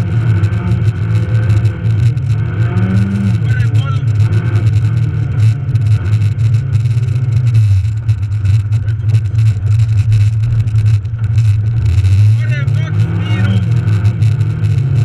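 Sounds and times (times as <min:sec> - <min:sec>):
car engine running hard: 0:00.0 - 0:15.0.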